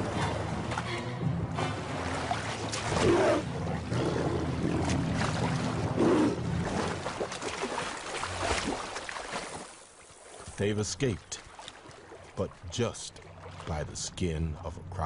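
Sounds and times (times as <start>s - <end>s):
animals splashing through water: 0.0s - 14.0s
churning river water: 0.0s - 15.0s.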